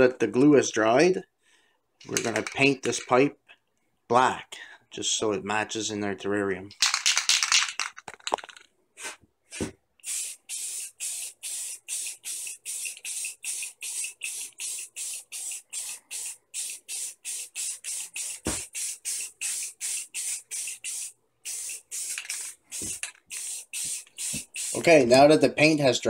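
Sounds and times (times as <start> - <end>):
spray paint can hissing: 10.0 - 25.0.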